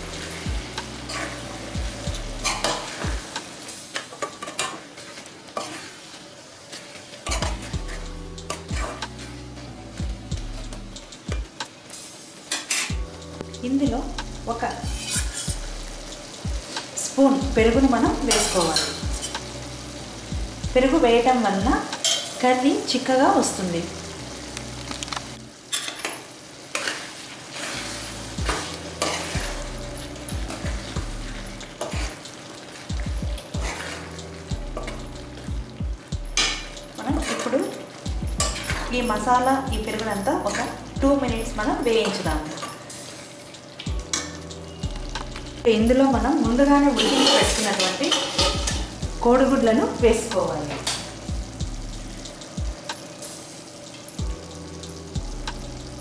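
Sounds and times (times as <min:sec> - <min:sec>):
food sizzling in a pan: 0:00.0 - 0:56.0
spoon scraping a metal pan: 0:01.0 - 0:01.4, 0:02.4 - 0:03.0, 0:04.2 - 0:06.0, 0:12.5 - 0:13.0, 0:14.9 - 0:15.6, 0:18.3 - 0:19.4, 0:22.0 - 0:22.4, 0:25.7 - 0:29.7, 0:33.5 - 0:35.0, 0:36.4 - 0:39.3, 0:40.0 - 0:40.8, 0:46.9 - 0:48.9
utensil scraping metal pan: 0:14.9 - 0:15.6, 0:26.7 - 0:29.6, 0:46.9 - 0:48.8.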